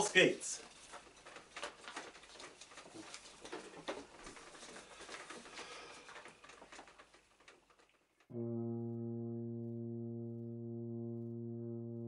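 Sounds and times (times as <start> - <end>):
paper sheets rustling: 0.0 - 8.3.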